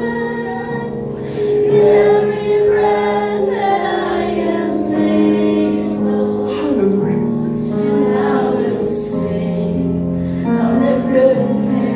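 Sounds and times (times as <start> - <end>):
congregation singing: 0.0 - 11.9.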